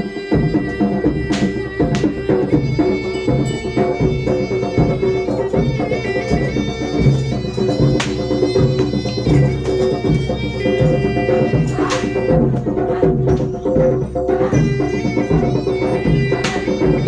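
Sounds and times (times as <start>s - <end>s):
drums and struck percussion: 0.0s - 17.0s
shrill reed wind instrument melody: 0.0s - 17.0s.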